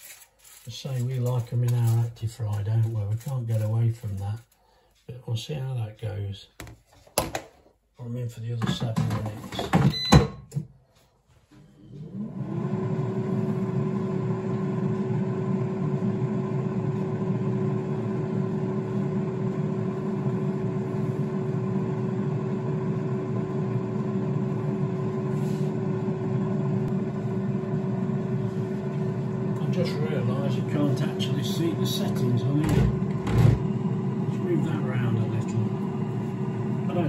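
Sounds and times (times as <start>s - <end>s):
air fryer fan whirring: 8.7s - 10.3s, 11.9s - 37.0s
drawer pushed in: 32.6s - 33.6s.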